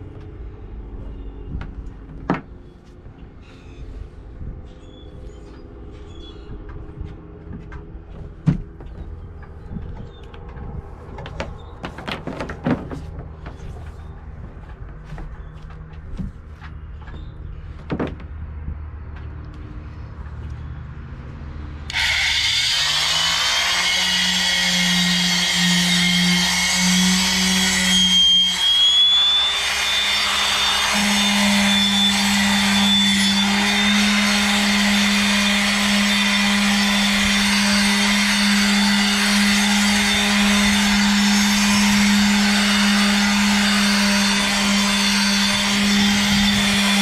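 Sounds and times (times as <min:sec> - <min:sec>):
electric palm sander running: 0:21.9 - 0:47.0.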